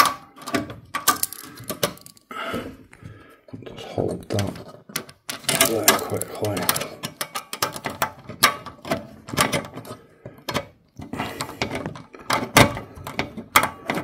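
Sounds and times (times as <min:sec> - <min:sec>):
screwdriver clicks and scrapes on metal: 0:04.6 - 0:10.6.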